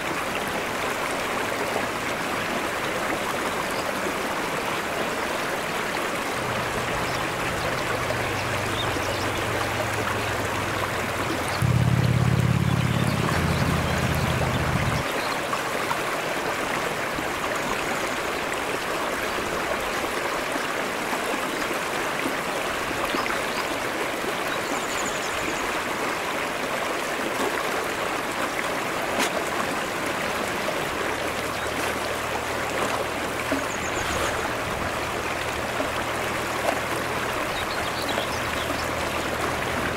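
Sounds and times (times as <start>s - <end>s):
stream rushing over rocks: 0.0s - 39.9s
low steady hum: 6.4s - 15.0s.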